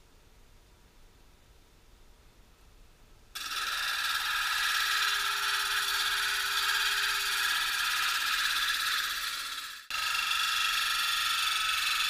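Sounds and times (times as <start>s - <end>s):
faint steady hum: 0.0s - 12.0s
stone grinding on spinning disc: 3.4s - 12.0s.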